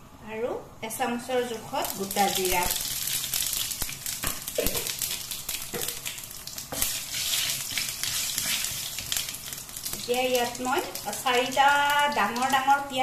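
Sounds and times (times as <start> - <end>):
spices sizzling in oil: 0.8 - 13.0
wooden spatula stirring: 6.7 - 10.0.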